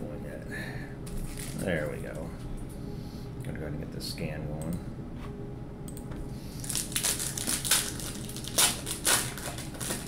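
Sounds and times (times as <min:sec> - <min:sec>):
foil wrapper tearing and crinkling: 0:06.6 - 0:10.0.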